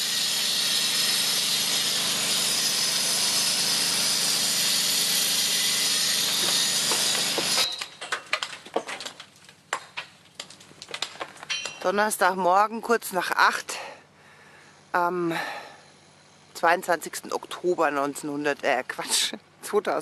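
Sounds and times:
power tool hissing on rock: 0:00.0 - 0:07.8.

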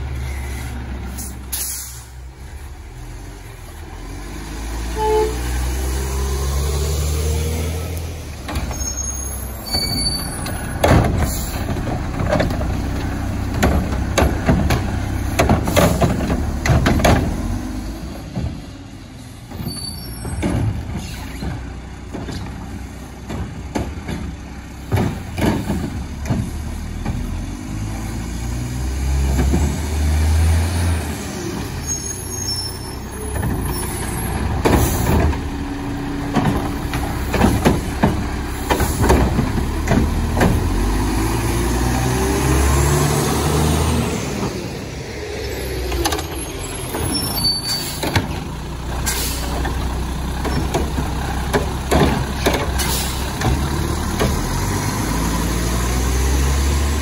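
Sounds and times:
garbage truck diesel engine: 0:00.0 - 0:57.0
air brakes: 0:00.2 - 0:02.2, 0:11.2 - 0:11.7, 0:19.2 - 0:21.6, 0:46.2 - 0:48.3, 0:49.0 - 0:49.7, 0:52.8 - 0:53.3
metal clanks and rattles: 0:36.2 - 0:40.9.

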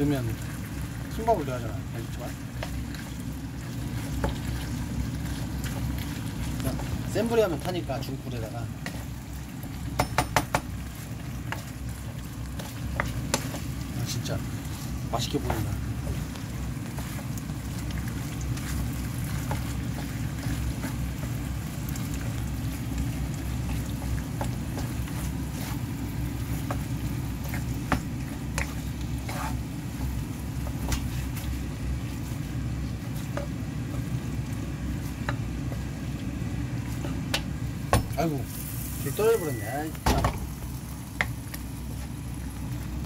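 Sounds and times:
spatula scraping frying pan: 0:23.6 - 0:31.6.

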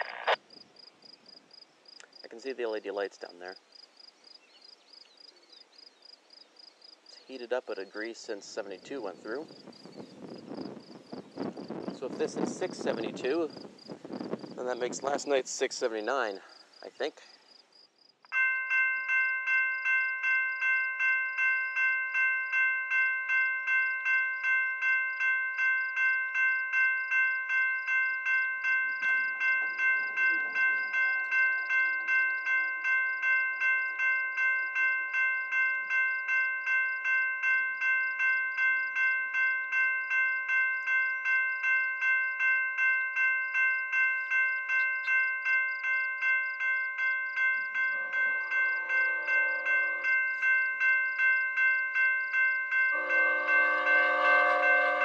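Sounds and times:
level crossing bell ringing: 0:18.3 - 0:55.0.

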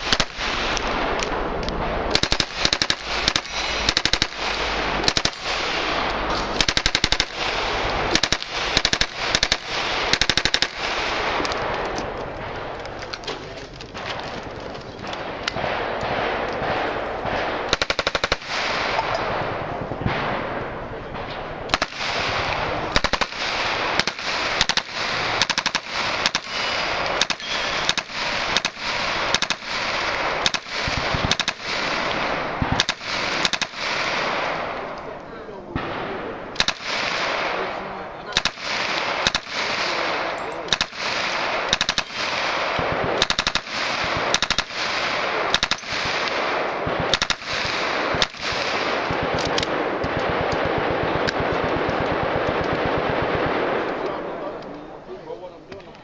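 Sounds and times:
submachine gun bursts: 0:41.7 - 0:42.2.

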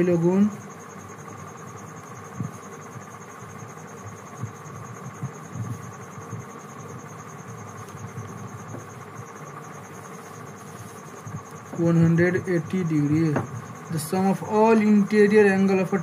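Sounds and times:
faint high pulsing trill: 0:00.0 - 0:16.0
steady background hum: 0:00.0 - 0:16.0.

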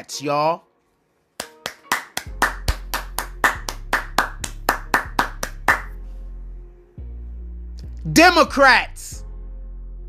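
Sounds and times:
hand claps in fast rhythm: 0:01.4 - 0:06.0.

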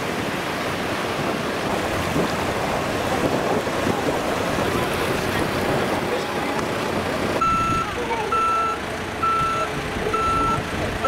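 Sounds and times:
surf washing on beach: 0:00.0 - 0:11.0
wind buffeting microphone: 0:00.1 - 0:08.0.

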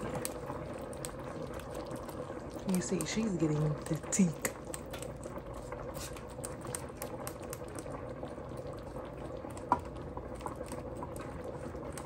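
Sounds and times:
sauce bubbling in skillet: 0:00.0 - 0:12.0
whisk stirring: 0:02.0 - 0:07.9.

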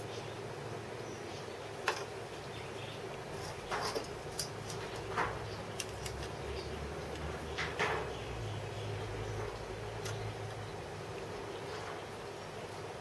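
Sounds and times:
metal tools clicking and scraping: 0:03.4 - 0:06.3.

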